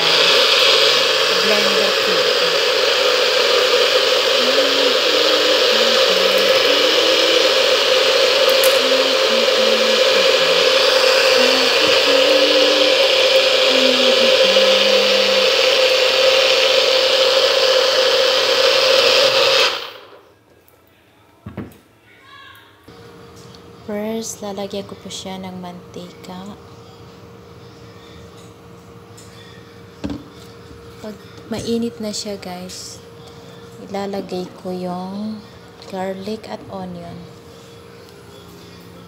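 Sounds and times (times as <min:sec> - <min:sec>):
blender running: 0:00.0 - 0:20.2.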